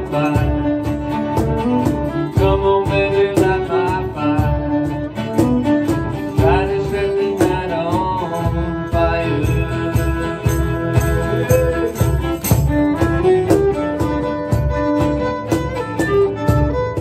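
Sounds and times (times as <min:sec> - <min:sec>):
cajon beat: 0:00.0 - 0:17.0
fiddle melody: 0:00.0 - 0:17.0
strummed acoustic guitar: 0:00.0 - 0:17.0.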